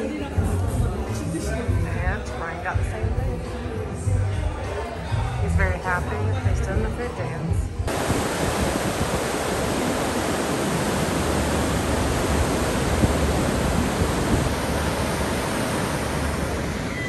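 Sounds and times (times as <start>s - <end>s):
wind: 7.8s - 17.0s
ship wake churning: 7.9s - 17.0s.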